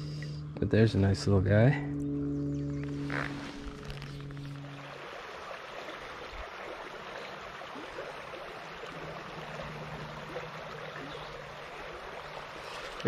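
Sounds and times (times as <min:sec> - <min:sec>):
stream rushing over gravel: 0:03.1 - 0:13.0.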